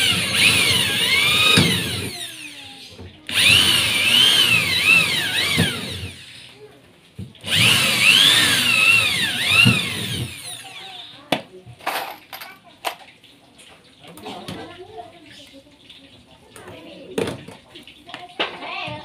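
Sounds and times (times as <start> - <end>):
electric drill boring through sheet metal: 0.0 - 6.5, 7.4 - 11.2.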